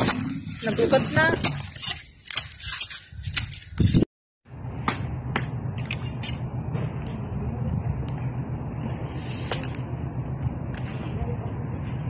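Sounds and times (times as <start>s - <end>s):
steady low rumble: 4.5s - 12.0s.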